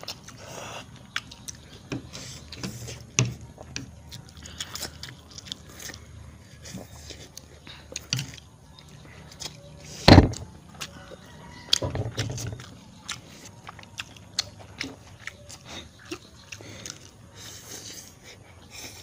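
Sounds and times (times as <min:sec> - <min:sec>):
loud thump: 0:10.0 - 0:10.4.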